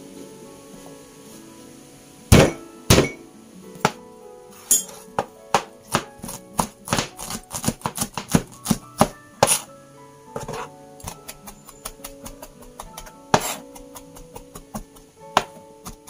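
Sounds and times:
soft background music: 0:00.0 - 0:16.0
knife chopping on plastic board: 0:05.6 - 0:09.6.

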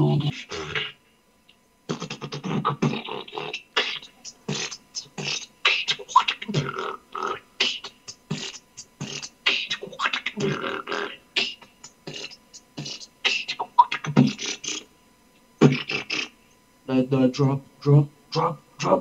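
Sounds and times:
beatboxing: 0:00.0 - 0:01.0, 0:01.9 - 0:14.9, 0:15.6 - 0:16.4.

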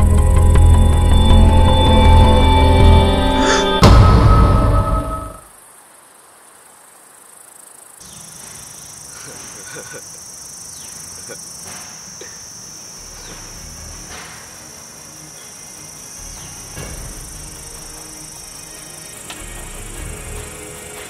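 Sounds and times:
tense music: 0:00.0 - 0:05.5, 0:13.2 - 0:21.0
crickets chirring: 0:00.0 - 0:21.0.

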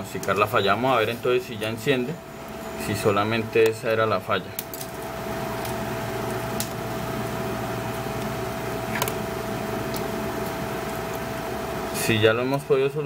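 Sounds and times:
machine whirring with whine: 0:00.0 - 0:13.0.

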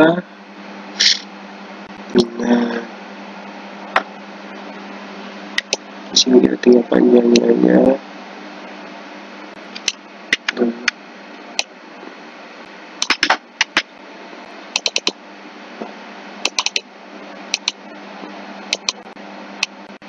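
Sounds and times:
steady low hum: 0:00.0 - 0:20.0
keyboard and mouse clicks: 0:05.6 - 0:05.8, 0:09.8 - 0:10.6, 0:13.0 - 0:13.9, 0:14.8 - 0:15.2, 0:16.4 - 0:16.8, 0:17.5 - 0:17.8, 0:18.7 - 0:19.0.

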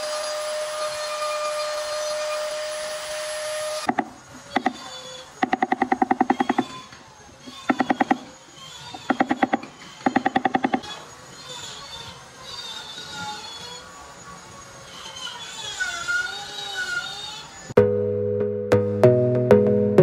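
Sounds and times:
rotary tool whining: 0:00.0 - 0:17.8
rapid ticking rattle: 0:03.9 - 0:06.8, 0:07.4 - 0:10.9.

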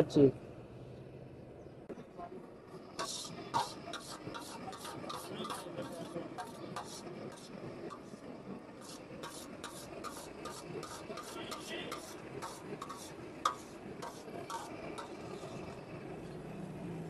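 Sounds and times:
ladle scraping metal pot: 0:02.9 - 0:15.8.

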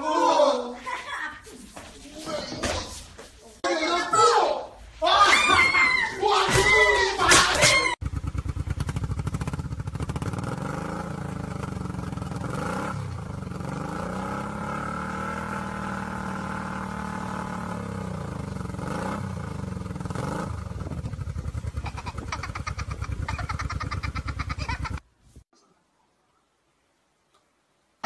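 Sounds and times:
motorcycle engine revving: 0:08.0 - 0:25.0.

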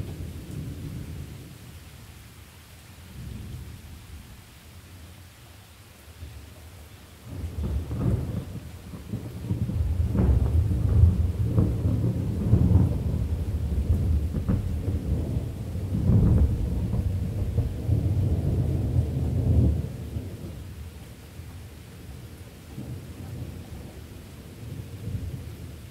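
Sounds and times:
rain hiss: 0:00.0 - 0:25.9
thunder rumbling: 0:07.2 - 0:21.1, 0:22.0 - 0:25.9.

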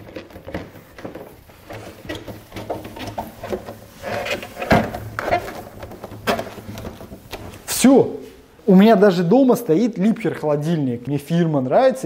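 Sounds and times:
rubber gasket clicks and rubbing: 0:00.0 - 0:07.7.

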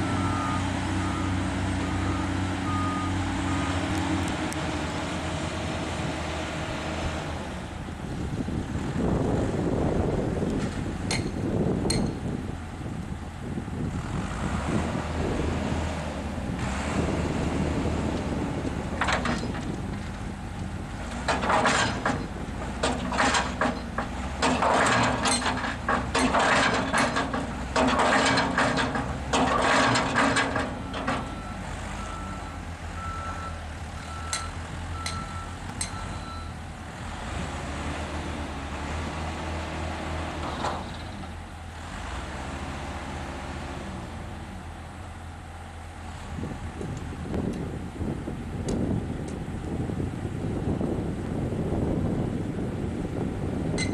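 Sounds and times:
reversing alarm beeps: 0:00.0 - 0:03.7, 0:30.9 - 0:36.6
diesel machinery running: 0:00.0 - 0:53.9.

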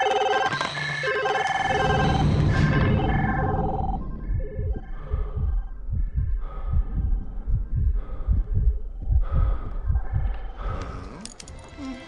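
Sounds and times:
rapid low thumping pulses: 0:01.8 - 0:10.8.

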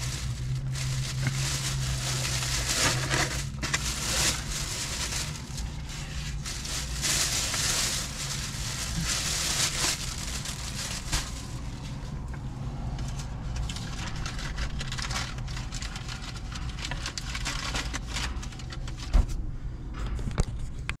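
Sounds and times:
rustling and crackling: 0:00.0 - 0:12.1
eating and handling noises: 0:00.0 - 0:12.3, 0:13.0 - 0:19.1.

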